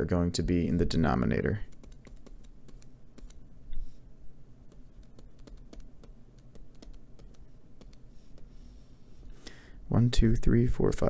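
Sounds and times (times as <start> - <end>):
stylus tapping on tablet screen: 1.7 - 3.4, 4.7 - 8.6.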